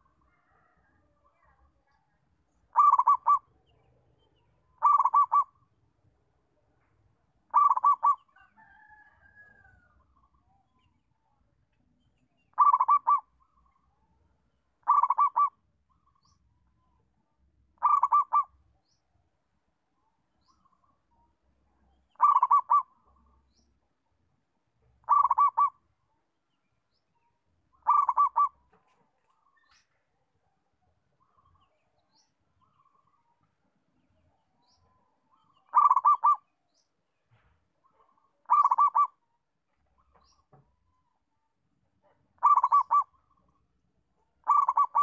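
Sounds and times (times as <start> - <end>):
dove cooing: 2.7 - 3.5, 4.8 - 5.6, 7.5 - 8.4, 12.5 - 13.3, 14.8 - 15.6, 17.8 - 18.5, 22.2 - 23.0, 25.0 - 25.8, 27.8 - 28.6, 35.7 - 36.5, 38.1 - 39.2, 42.4 - 43.2, 44.4 - 45.0.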